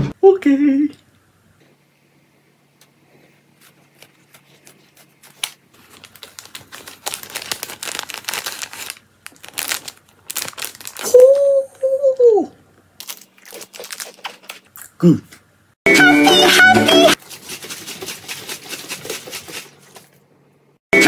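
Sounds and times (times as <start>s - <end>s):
plastic wrapper crinkling: 3.6s - 11.4s, 13.0s - 14.8s.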